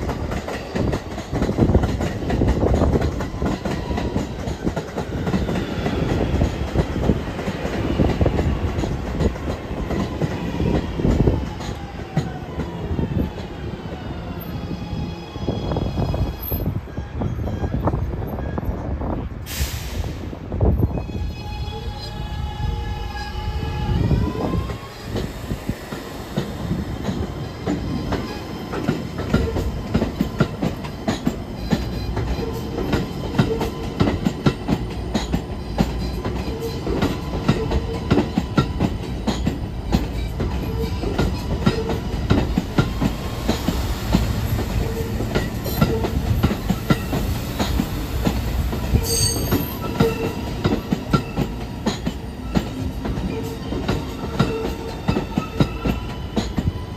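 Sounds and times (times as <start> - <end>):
wheels clicking over rail joints: 0.0 - 13.6, 25.9 - 56.8
train propulsion whine: 0.0 - 56.9
train rumble: 0.0 - 56.9
high wheel squeal: 35.2 - 56.9.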